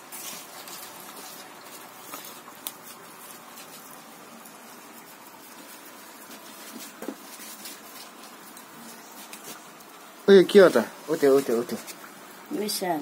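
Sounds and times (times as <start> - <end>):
faint crackle and rustle: 0.0 - 13.0.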